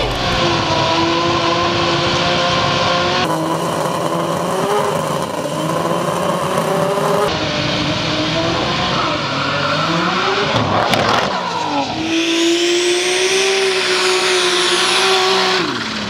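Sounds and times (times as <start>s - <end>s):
tyres spinning on tarmac: 0.0s - 7.3s, 13.6s - 16.0s
car engine at high revs: 0.0s - 16.0s.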